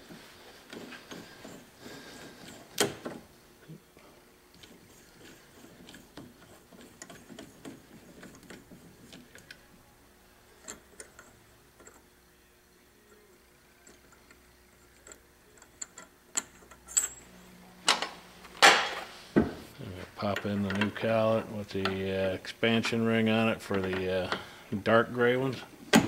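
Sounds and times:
metallic clicks and scrapes: 4.5 - 9.6, 10.6 - 12.0.

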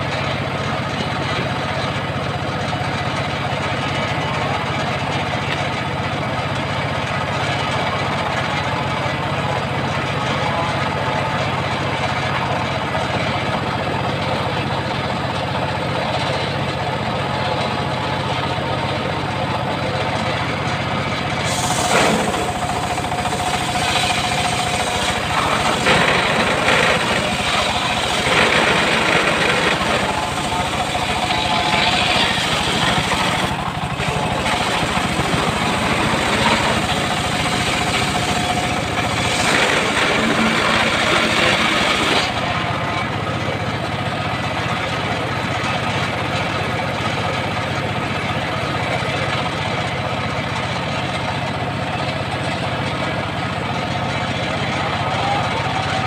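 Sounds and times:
sawmill engine running: 0.0 - 56.0
saw blade cutting log: 21.4 - 42.4.

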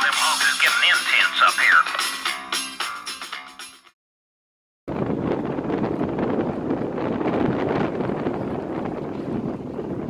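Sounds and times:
heavy wind buffeting microphone: 4.9 - 10.0.

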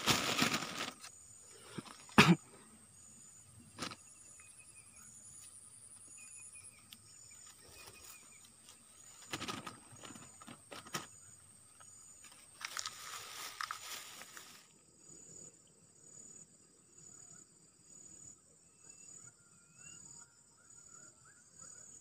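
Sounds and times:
rustling: 0.0 - 1.1, 7.5 - 11.2, 12.2 - 14.7
insects buzzing and chirping: 0.0 - 22.0.

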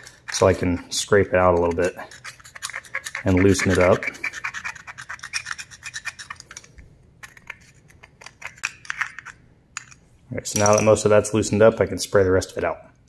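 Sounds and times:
screwdriver scraping metal bowl: 0.0 - 10.0.

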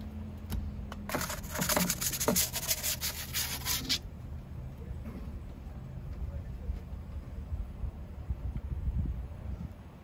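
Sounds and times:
wooden peel scraping on stone: 1.1 - 4.0.

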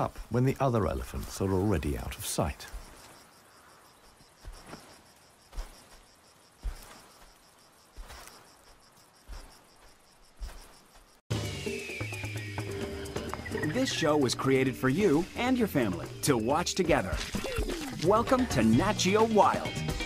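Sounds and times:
elephant footfalls on dry ground: 0.0 - 11.2, 16.9 - 18.4
crickets chirping: 0.0 - 20.0.

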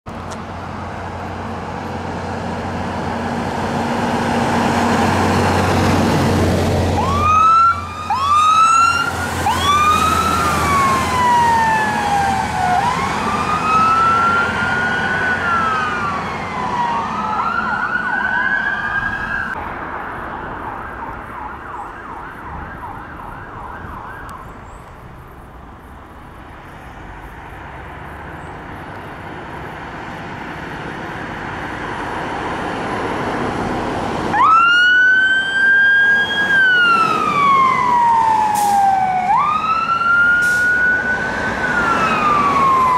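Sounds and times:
passing road traffic: 0.0 - 42.9
fire engine diesel engine: 0.1 - 42.9
electronic sirens wailing: 6.8 - 19.6, 20.6 - 24.4, 34.3 - 42.9.

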